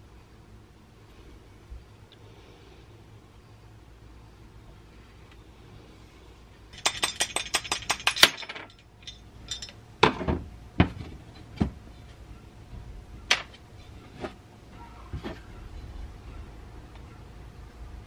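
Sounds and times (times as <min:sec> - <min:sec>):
metal parts clinking: 0:06.7 - 0:09.8
metal parts knocking on bench: 0:06.8 - 0:11.0.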